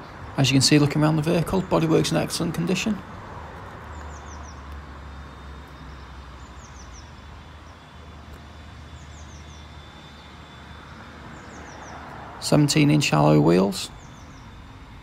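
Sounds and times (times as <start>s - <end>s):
distant traffic rumble: 0.0s - 15.0s.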